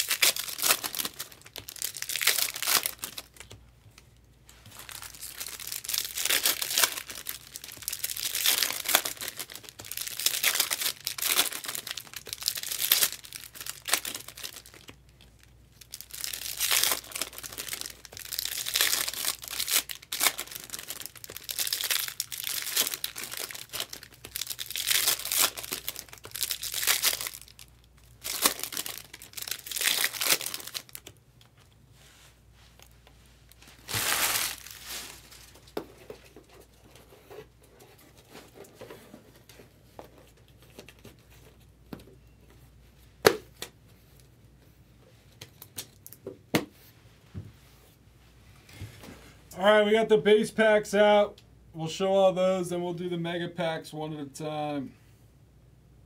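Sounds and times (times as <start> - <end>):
foil wrappers crinkling: 0.0 - 3.6, 4.5 - 31.2, 33.5 - 36.6.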